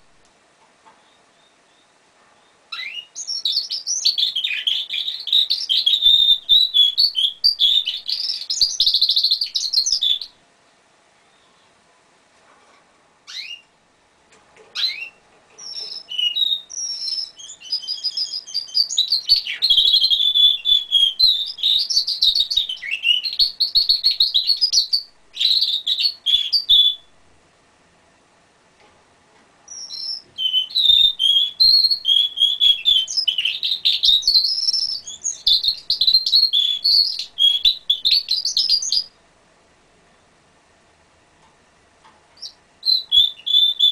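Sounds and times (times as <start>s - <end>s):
canary singing trills and warbles: 1.0s - 10.4s, 13.2s - 13.8s, 14.7s - 27.3s, 29.7s - 39.2s, 42.3s - 43.9s.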